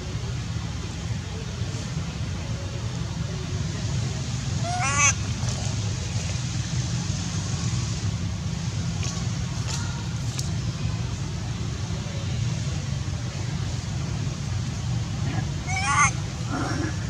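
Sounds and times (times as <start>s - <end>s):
monkey squealing: 4.6s - 5.2s, 15.3s - 17.0s.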